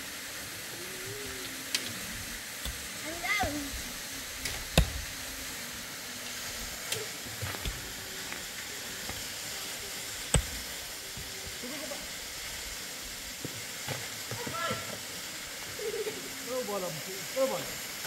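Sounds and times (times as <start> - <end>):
steady hiss: 0.0 - 18.0
pickaxe striking stony ground: 4.5 - 5.0, 10.3 - 10.7.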